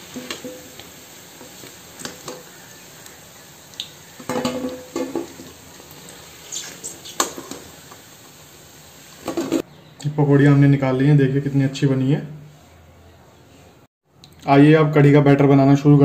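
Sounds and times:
food sizzling in hot oil: 0:00.0 - 0:09.7.

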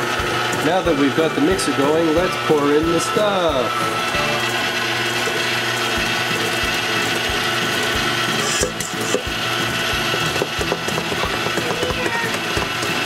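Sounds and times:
stand mixer motor humming: 0:00.0 - 0:13.0.

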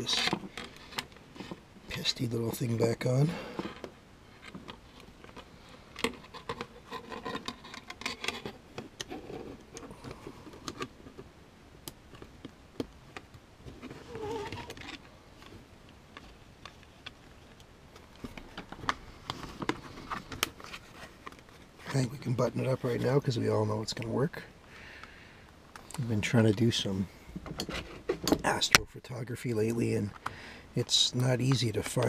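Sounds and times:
fingers rustling on plastic case: 0:03.6 - 0:11.3.

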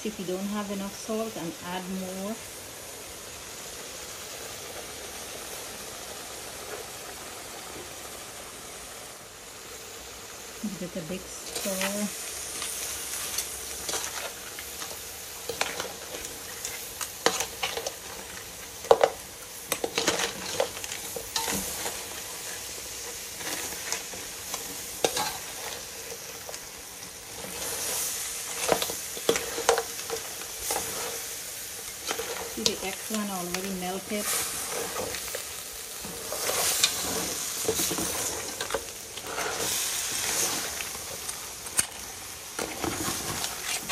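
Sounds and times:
food sizzling in metal pan: 0:00.0 - 0:43.9
metal spoon scraping pan: 0:11.4 - 0:22.6, 0:23.4 - 0:25.8, 0:27.4 - 0:35.4, 0:36.0 - 0:40.9.

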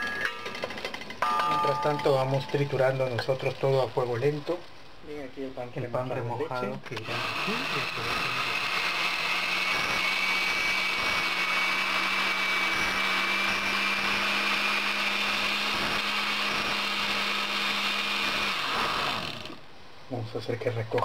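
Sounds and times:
blender motor whining: 0:07.0 - 0:19.6.

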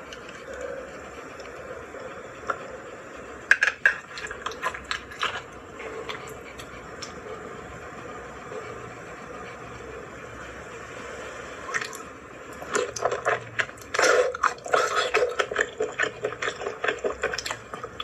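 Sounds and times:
wet stirring of food in a pan: 0:12.6 - 0:18.0.

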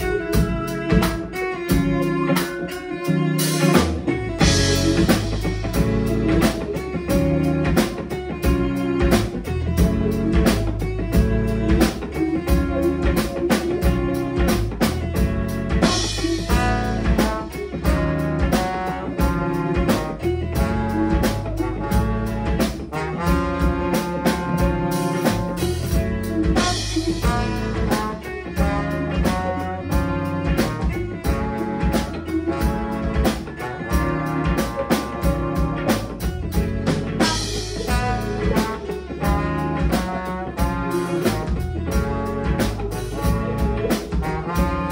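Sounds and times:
violin: 0:00.0 - 0:23.0
drum kit beat: 0:00.0 - 0:44.9
electric bass: 0:00.0 - 0:44.9
electric guitars: 0:00.0 - 0:44.9
trombone: 0:00.0 - 0:44.9.

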